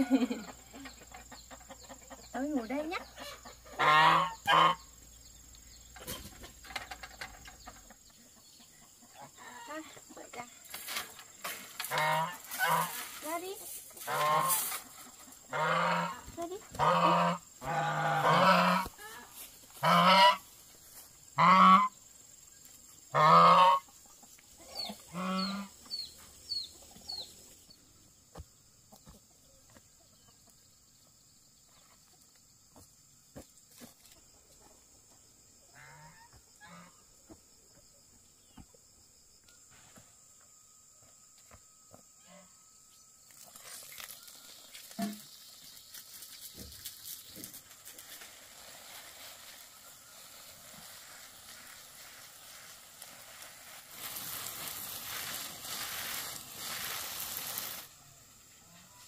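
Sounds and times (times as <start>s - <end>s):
geese honking: 3.2s - 4.9s, 11.8s - 13.2s, 14.0s - 14.9s, 15.5s - 19.0s, 19.8s - 20.5s, 21.4s - 21.9s, 23.1s - 23.9s.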